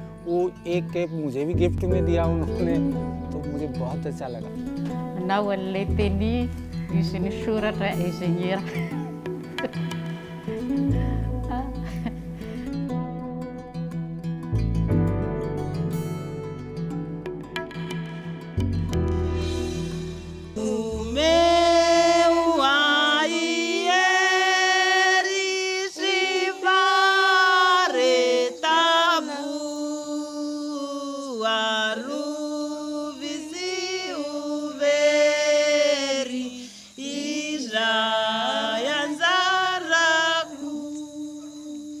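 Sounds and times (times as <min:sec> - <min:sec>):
woman singing unaccompanied: 0:05.0 - 0:09.7, 0:10.8 - 0:12.2, 0:20.6 - 0:42.0.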